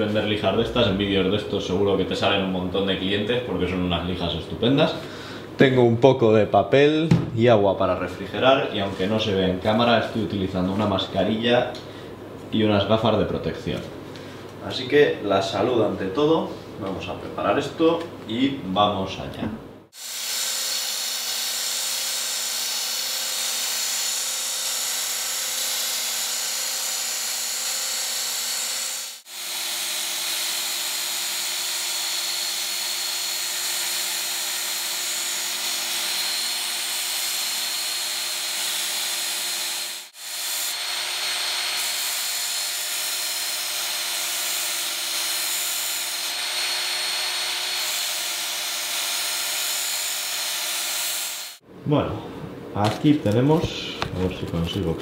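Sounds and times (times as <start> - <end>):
belt sharpener grinding steel: 20.0 - 51.6.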